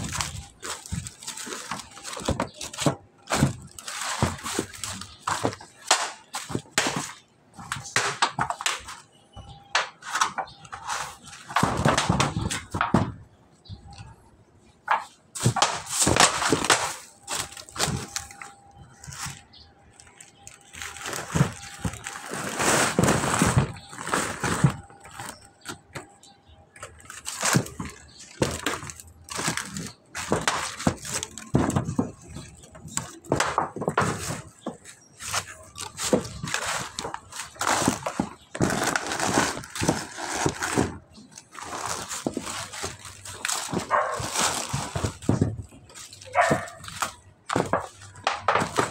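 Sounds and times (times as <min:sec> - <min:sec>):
leaves and sack rustling: 0:15.4 - 0:25.4, 0:35.2 - 0:47.6.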